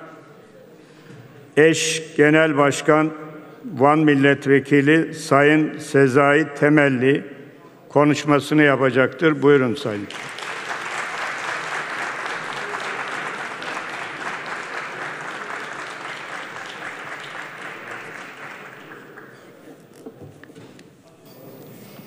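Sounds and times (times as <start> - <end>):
crowd applauding: 10.0 - 19.7.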